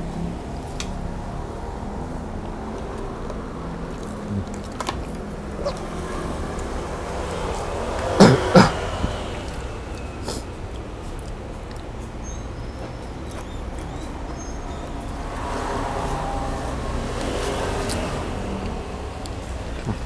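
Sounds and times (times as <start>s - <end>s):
eating clicks: 2.7s - 6.8s, 17.2s - 20.0s
man coughing: 8.2s - 9.0s.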